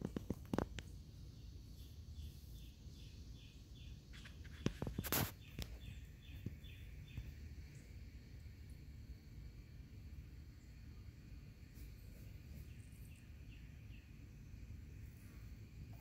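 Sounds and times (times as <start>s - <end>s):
brief rustle: 4.1s - 5.8s.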